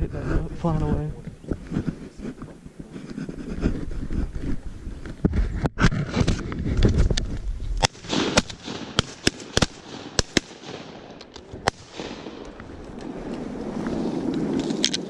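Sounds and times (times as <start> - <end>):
shotgun blasts: 7.8 - 12.6.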